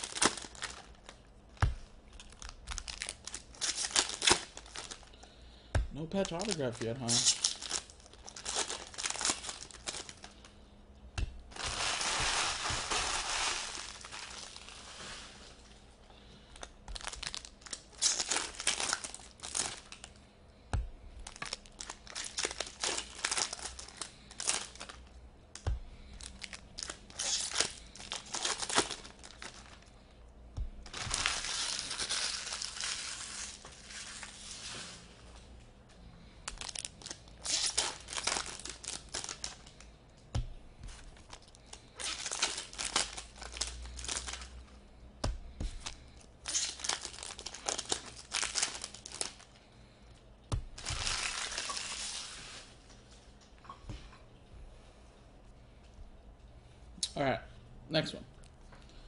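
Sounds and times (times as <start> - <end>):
foil wrappers crinkling and tearing: 0.0 - 5.4, 6.0 - 10.6, 11.5 - 20.3, 21.2 - 30.0, 30.8 - 35.0, 36.4 - 39.9, 40.8 - 44.6, 45.2 - 49.6, 50.6 - 52.9
cards rustling and clicking: 6.0 - 10.5.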